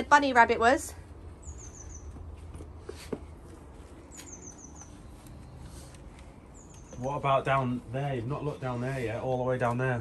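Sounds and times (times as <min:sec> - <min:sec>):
small bird singing: 0:01.4 - 0:02.2, 0:04.0 - 0:09.5.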